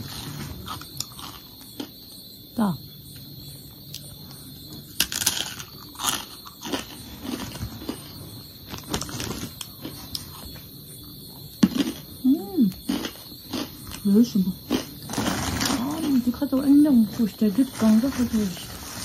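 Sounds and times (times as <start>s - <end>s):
crunching crispy snack: 0.0s - 2.0s, 4.8s - 10.6s, 11.6s - 16.3s.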